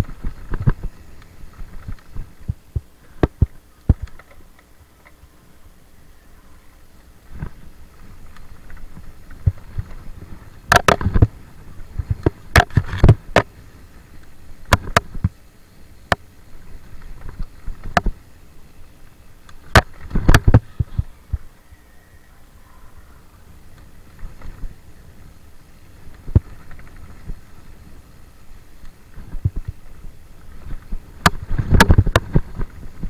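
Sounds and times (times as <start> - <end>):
bike clacking and rattling: 0.0 - 5.4, 7.2 - 15.4, 19.4 - 21.0, 23.6 - 33.0
bike tyres rumbling on dirt: 0.0 - 5.9, 6.8 - 21.7, 23.4 - 33.0.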